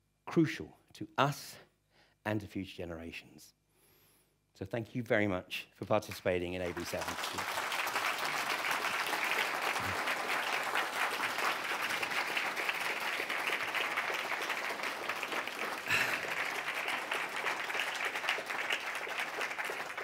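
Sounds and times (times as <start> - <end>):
audience applauding: 6.1 - 20.0.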